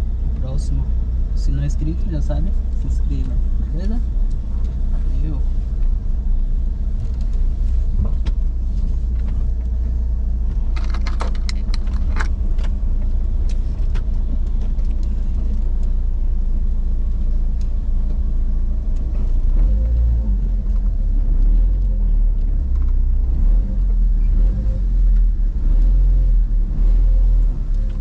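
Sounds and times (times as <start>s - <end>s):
car engine and tyre rumble: 0.0s - 28.0s
sharp rattling clicks: 10.6s - 16.0s.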